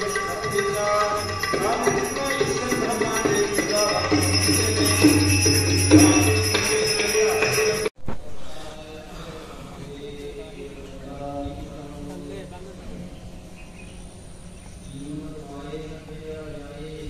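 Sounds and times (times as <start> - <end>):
devotional music: 0.0 - 8.0.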